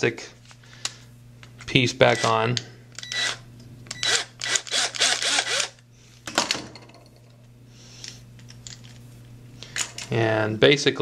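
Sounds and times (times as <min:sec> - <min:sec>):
cordless drill driving screw: 0:03.0 - 0:05.8.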